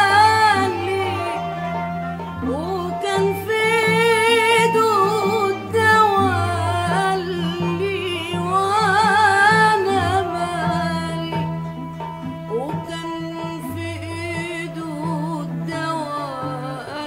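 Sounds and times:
woman singing with vibrato: 0:00.0 - 0:11.8, 0:12.5 - 0:17.0.

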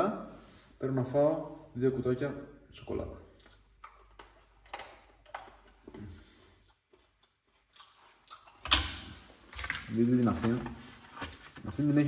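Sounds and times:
man chewing chocolate: 0:03.4 - 0:08.7.

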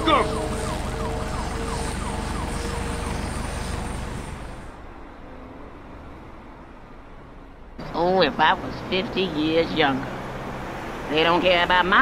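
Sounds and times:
police siren yelping: 0:00.0 - 0:04.8.

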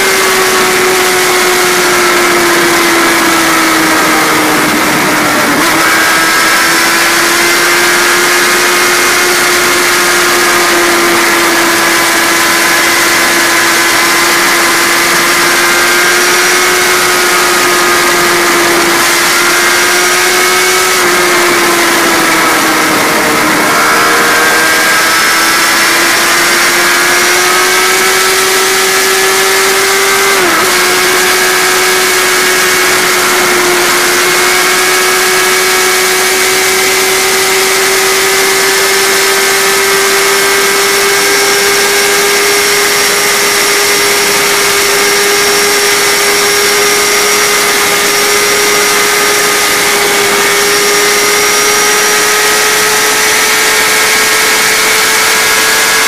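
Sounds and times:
motorcycle engine at high revs: 0:00.0 - 0:56.0.

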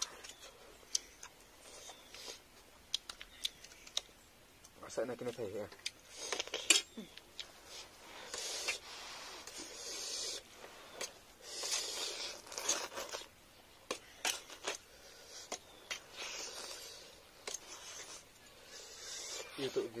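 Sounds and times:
noodles slurped noisily: 0:07.5 - 0:13.3, 0:13.9 - 0:20.0.

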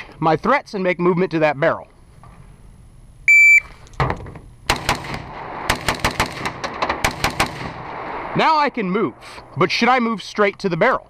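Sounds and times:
shot timer beep: 0:03.3 - 0:03.7
rifle firing rapid shots: 0:04.7 - 0:08.1.

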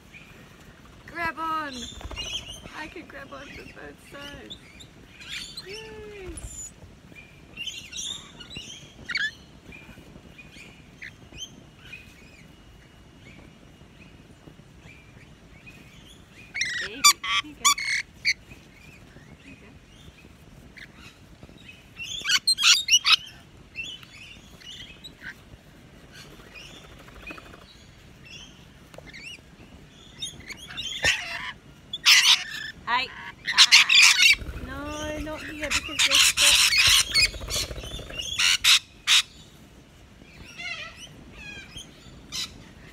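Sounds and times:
soft bird chirps: 0:01.6 - 0:31.4
parrots shrill screeching: 0:30.7 - 0:39.3.

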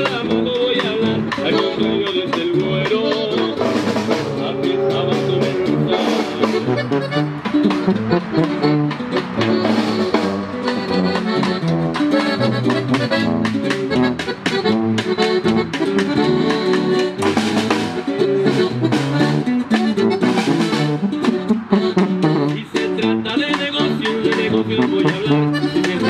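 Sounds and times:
accordion melody: 0:00.0 - 0:26.0
strummed guitar: 0:00.0 - 0:26.0
tuba bass line: 0:00.0 - 0:26.0.

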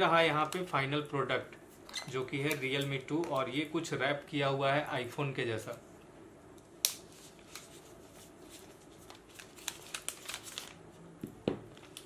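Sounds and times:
plastic wrap crinkling: 0:07.2 - 0:10.8, 0:11.7 - 0:12.0.

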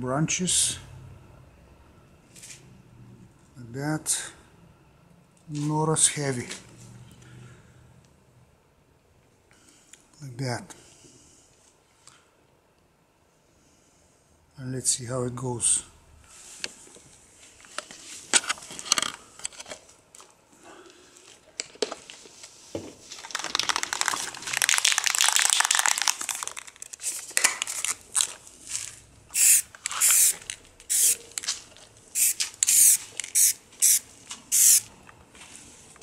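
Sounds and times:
spray paint can hissing: 0:29.3 - 0:31.4, 0:32.1 - 0:34.9.

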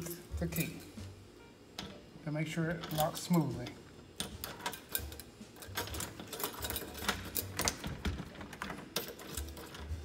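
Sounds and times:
doorknob rattling: 0:05.8 - 0:09.9.

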